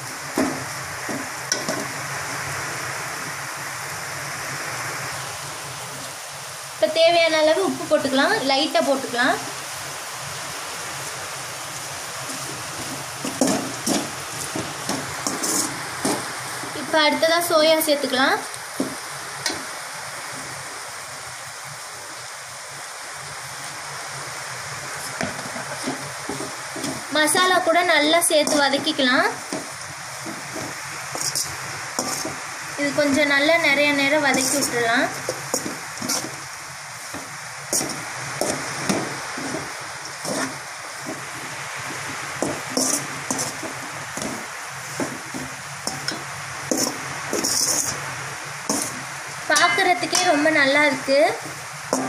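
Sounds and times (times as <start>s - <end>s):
masala sizzling in oil: 0.0s - 52.0s
spatula scraping pan: 12.2s - 16.7s, 25.0s - 50.5s, 51.4s - 52.0s.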